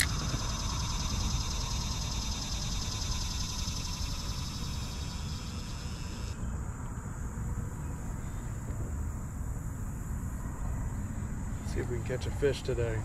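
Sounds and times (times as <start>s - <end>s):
wind rumbling on microphone: 0.0s - 2.8s, 6.4s - 13.0s
high rapidly pulsing buzz: 0.0s - 6.6s.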